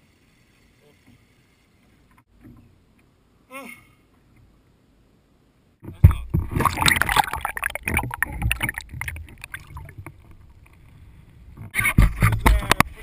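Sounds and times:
water splashing against kayak: 5.8 - 13.0.

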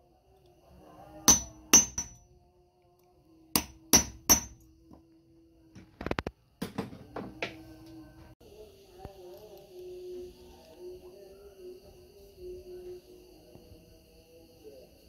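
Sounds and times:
hammer striking metal: 1.3 - 2.2, 3.6 - 4.7.

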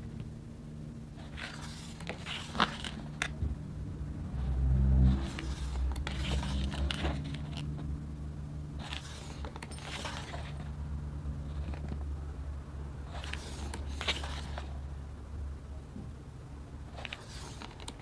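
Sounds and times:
steady low hum: 0.0 - 18.0
packaging scraping and rustling: 1.2 - 3.4, 5.1 - 7.9, 8.8 - 10.7, 13.1 - 14.8, 16.9 - 18.0.

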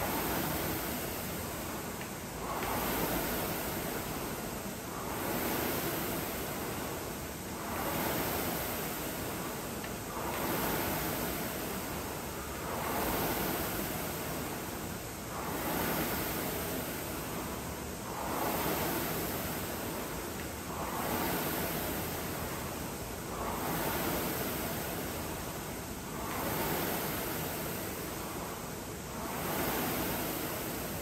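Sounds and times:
rowing machine fan whooshing: 0.0 - 31.0.

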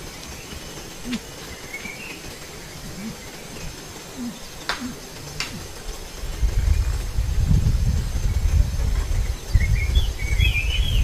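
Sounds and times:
bird calls: 0.0 - 7.2, 8.1 - 11.0
low background noise: 0.0 - 11.0
sharp clicks: 0.2 - 6.1
high bird chirp: 9.2 - 11.0.

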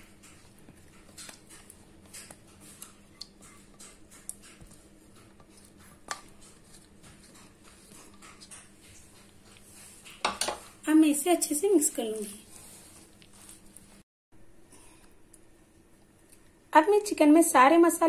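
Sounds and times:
soft wet food sounds: 0.0 - 10.2, 12.1 - 14.0.

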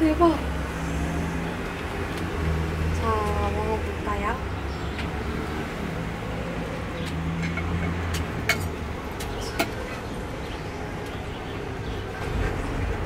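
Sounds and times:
street traffic hum: 0.0 - 13.0
cutlery clinking on a plate: 7.4 - 8.7.

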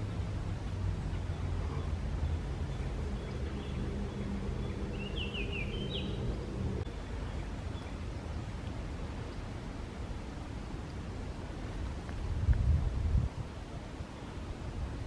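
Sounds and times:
steady low hum: 0.0 - 8.9
bird singing: 1.0 - 8.0.

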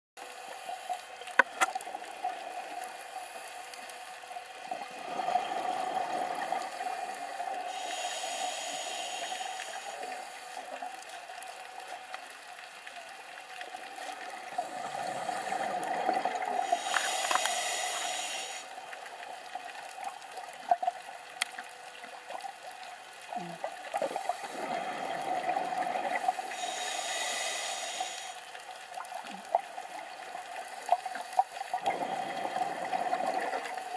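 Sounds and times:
faint clicks: 0.8 - 4.7, 9.2 - 18.1, 18.9 - 24.3
hissing inhalation: 6.8 - 10.6, 16.6 - 18.7, 26.5 - 28.5.

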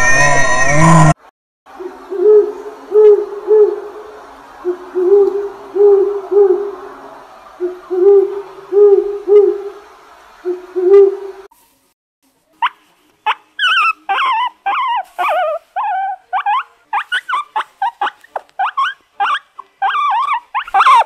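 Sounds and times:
faint background hiss: 1.7 - 21.0
owl hooting: 1.8 - 6.9, 7.6 - 9.8, 10.4 - 11.4.

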